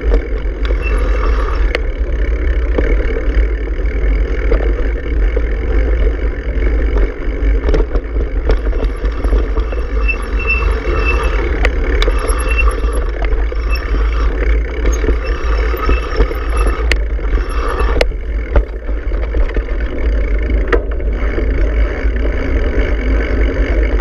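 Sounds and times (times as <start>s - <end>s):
bicycle tyres rolling on dirt: 0.0s - 24.0s
clicks and rattles: 6.9s - 13.9s.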